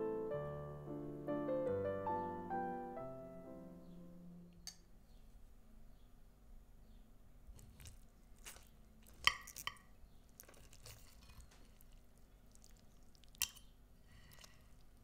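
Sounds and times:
soft slicing and squishing: 0:07.5 - 0:15.0.

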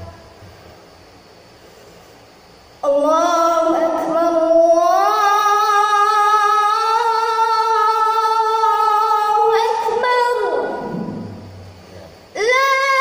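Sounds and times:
boy chanting call to prayer: 0:02.8 - 0:13.0.

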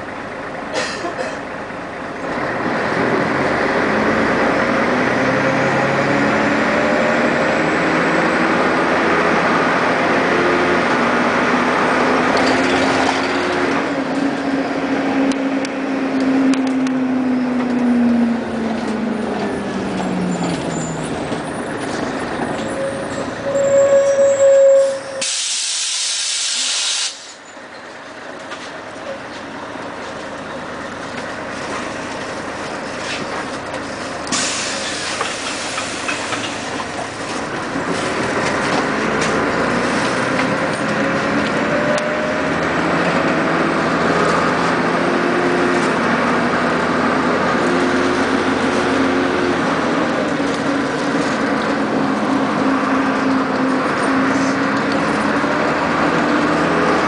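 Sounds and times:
bus cabin noise: 0:00.0 - 0:57.0
bus drive axle whine: 0:00.0 - 0:57.0
compressed air hiss: 0:25.2 - 0:27.4, 0:34.3 - 0:36.3.

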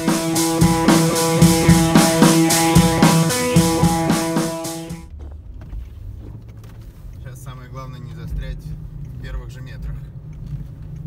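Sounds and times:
drum and guitar music: 0:00.0 - 0:05.0.

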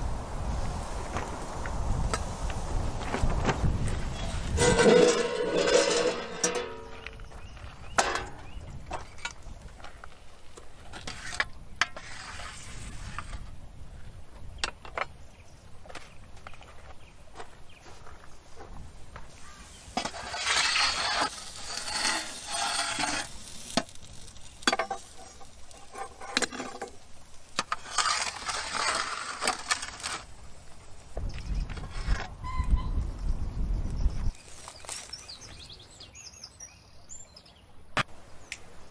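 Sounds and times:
scraping and sizzling: 0:04.1 - 0:13.5, 0:19.3 - 0:30.8
metal tools clinking on pan: 0:04.6 - 0:07.0.

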